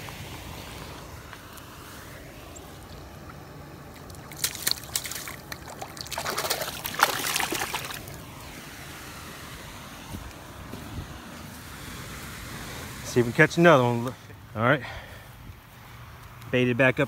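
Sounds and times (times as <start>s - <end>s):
water splashing and sloshing: 2.2s - 8.5s.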